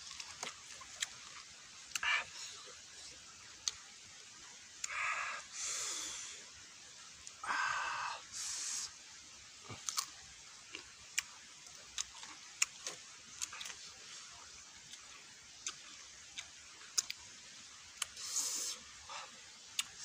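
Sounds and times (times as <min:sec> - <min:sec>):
chewing and crunching: 0:00.0 - 0:02.6, 0:09.7 - 0:17.2
man hissing through mouth: 0:18.2 - 0:18.8.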